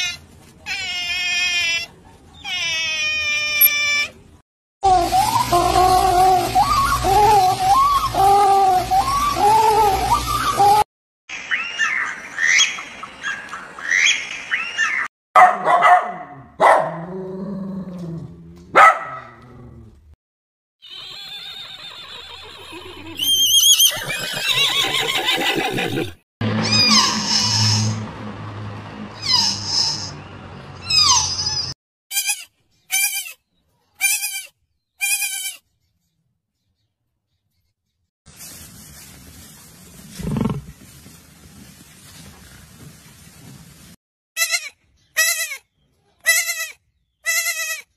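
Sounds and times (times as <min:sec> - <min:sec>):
dog barking: 0:15.4 - 0:17.1, 0:18.7 - 0:19.4.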